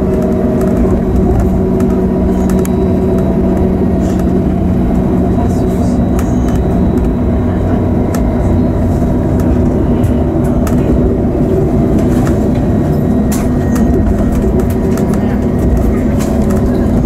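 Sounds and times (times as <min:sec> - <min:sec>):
railcar engine and wheels drone: 0:00.0 - 0:17.0
wheels clicking over track joints: 0:09.3 - 0:17.0.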